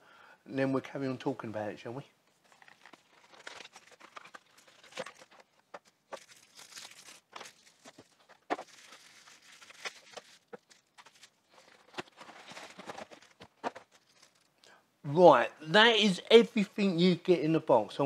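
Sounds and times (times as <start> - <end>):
plastic wrapping crinkling: 2.3 - 14.6.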